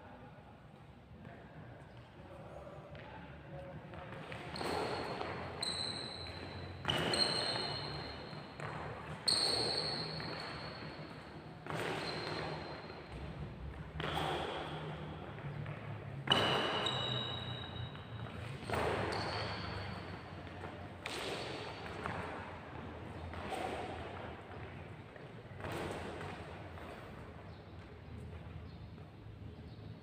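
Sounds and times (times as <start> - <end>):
shoes squeaking on wooden floor: 4.5 - 8.3.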